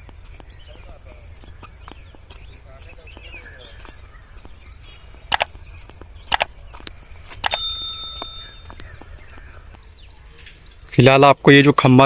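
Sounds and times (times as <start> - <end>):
footsteps on ballast: 0.0 - 7.4, 8.2 - 11.0
mouse clicks: 5.3 - 5.5, 6.3 - 6.5
bell ding: 7.5 - 8.7.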